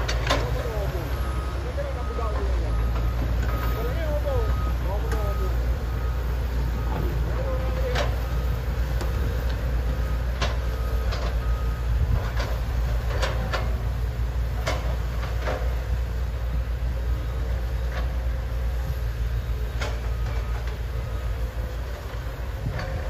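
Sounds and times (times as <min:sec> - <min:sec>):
excavator diesel engines rumbling: 0:00.0 - 0:23.0
faint repeated beeping: 0:00.1 - 0:16.0
metallic clanks and knocks: 0:14.6 - 0:15.7.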